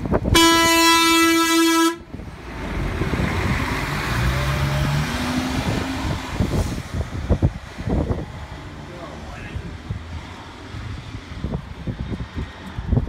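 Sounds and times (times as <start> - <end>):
bus horn blast: 0.3 - 2.1
bus engine pulling away: 1.8 - 13.0.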